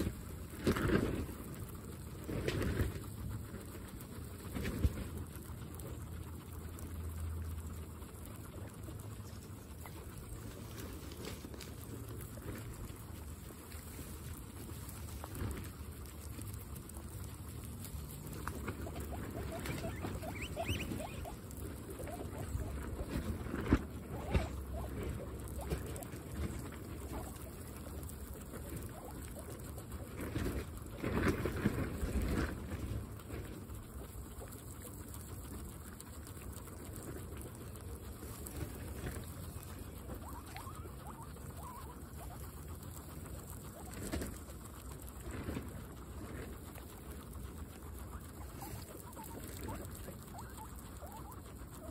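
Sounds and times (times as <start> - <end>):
guinea pig squeaks: 0.0 - 51.9
guinea pigs chewing grass: 0.0 - 51.9
grass blades rustling: 9.8 - 32.7.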